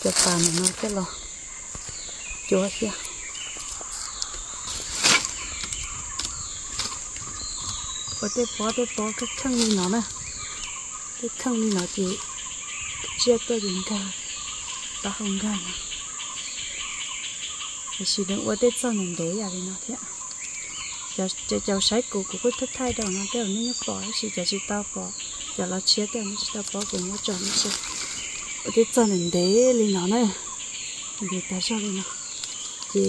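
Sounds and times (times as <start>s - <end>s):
woman talking: 0.0s - 1.2s, 2.5s - 3.1s, 8.2s - 10.2s, 11.2s - 12.2s, 13.1s - 14.2s, 15.0s - 15.8s, 18.0s - 20.1s, 21.2s - 27.8s, 28.7s - 30.5s, 31.2s - 32.1s
insects droning: 0.0s - 33.0s.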